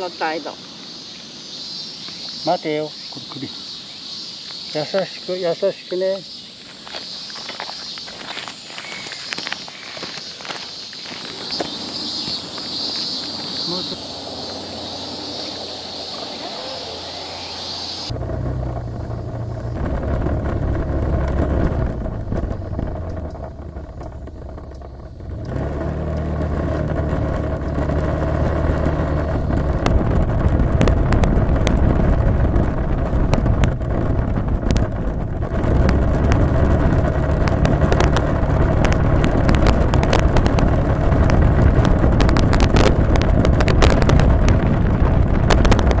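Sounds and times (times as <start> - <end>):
wind buffeting microphone: 7.7 - 46.0
scooter engine running: 10.5 - 46.0.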